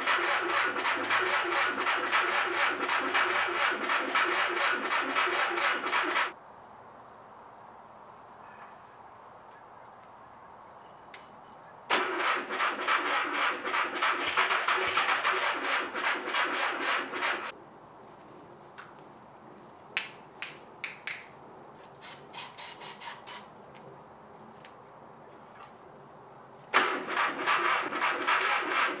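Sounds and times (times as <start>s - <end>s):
engine cranked by starter: 0.0s - 6.3s, 11.9s - 17.5s, 26.7s - 29.0s.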